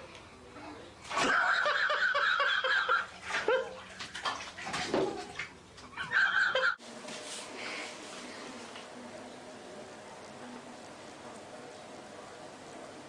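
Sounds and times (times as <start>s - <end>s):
bathwater splashing: 1.0s - 6.5s.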